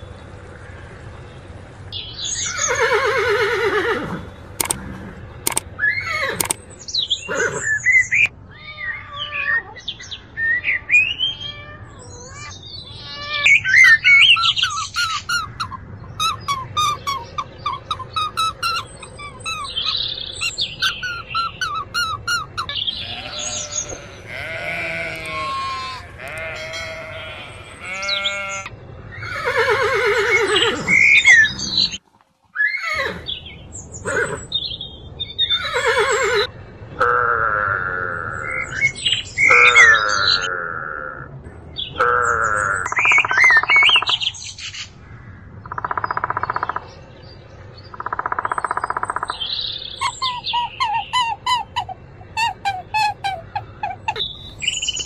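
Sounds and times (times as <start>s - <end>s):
animal calls: 2.4s - 10.0s, 10.6s - 32.0s, 32.6s - 34.7s, 35.4s - 41.3s, 48.0s - 55.0s
horses whinnying: 2.5s - 6.6s, 7.2s - 8.3s, 15.0s - 32.0s, 32.6s - 33.4s, 34.0s - 34.6s, 35.5s - 36.5s
bird chirps and squawks: 10.6s - 32.0s, 48.0s - 55.0s.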